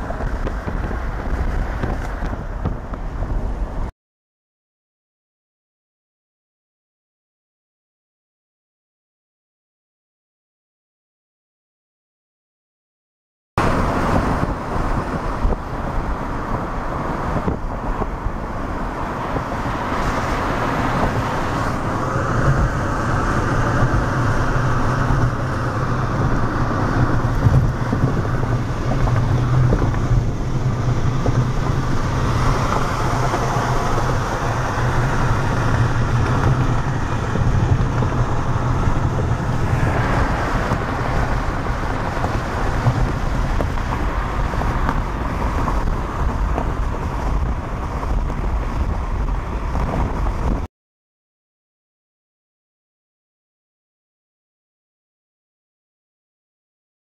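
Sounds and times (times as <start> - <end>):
road and wind noise: 0.0 - 3.9, 13.6 - 50.7.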